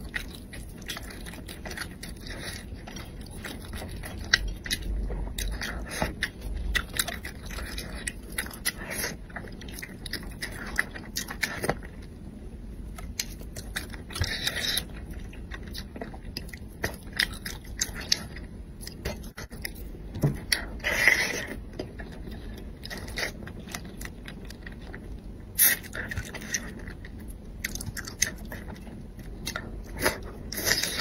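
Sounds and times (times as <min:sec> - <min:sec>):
chewing and sucking food: 0:00.0 - 0:11.9.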